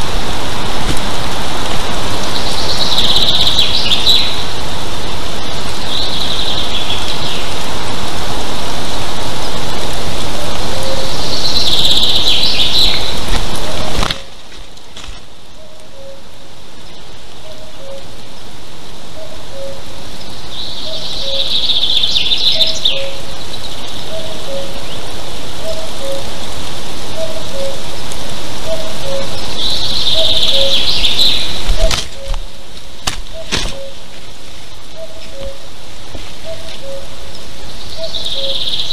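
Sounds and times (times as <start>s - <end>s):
loud steady rushing hiss: 0.0s - 38.9s
bird singing chirpy phrase: 2.2s - 4.4s, 19.2s - 25.0s, 28.7s - 32.4s, 33.3s - 34.0s, 34.9s - 35.7s, 36.4s - 38.9s.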